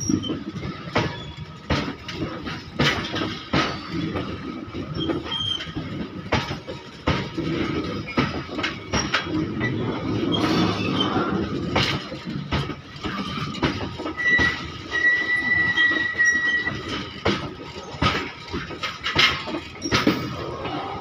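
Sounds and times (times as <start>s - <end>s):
train wheels clattering: 0.0s - 21.0s.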